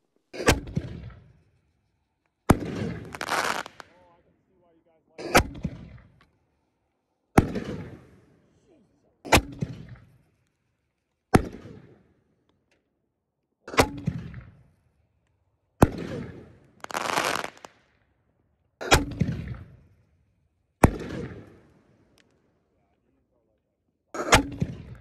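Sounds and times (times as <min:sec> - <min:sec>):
firework shells banging: 0:02.9 - 0:04.0.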